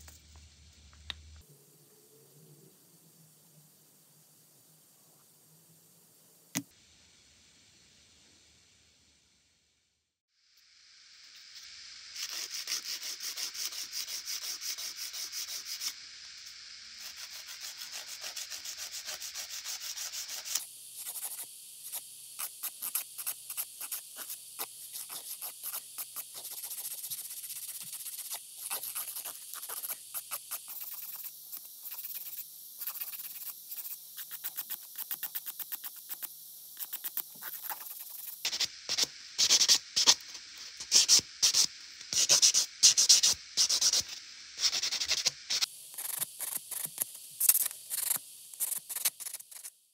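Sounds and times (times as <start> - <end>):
sanding block scratching nail: 12.2 - 16.0, 17.0 - 49.7
nail file rasping: 17.0 - 40.2, 40.8 - 49.7.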